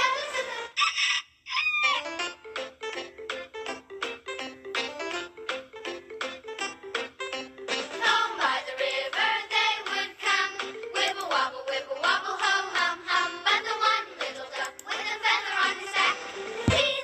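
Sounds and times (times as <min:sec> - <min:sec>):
voices singing children's song: 0:00.0 - 0:00.8, 0:07.7 - 0:17.0
bouncy instrumental backing: 0:02.0 - 0:17.0.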